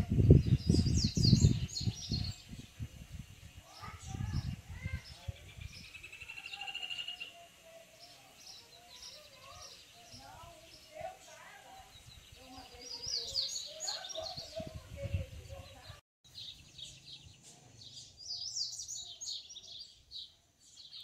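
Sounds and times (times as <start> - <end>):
bird chirping and warbling: 0.0 - 21.0
buzzy bird trill: 4.8 - 14.6.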